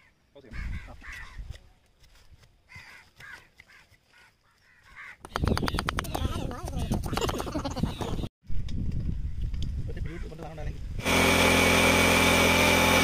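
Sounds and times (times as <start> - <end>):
crow cawing: 0.0 - 1.4, 2.7 - 5.3.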